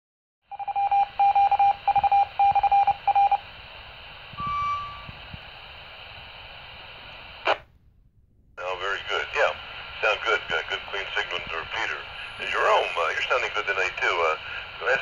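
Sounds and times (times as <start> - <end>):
morse-like radio beeps: 0.5 - 3.4, 4.4 - 5.2
radio hiss: 2.5 - 7.7, 8.6 - 15.0
short high beep: 4.4 - 5.2.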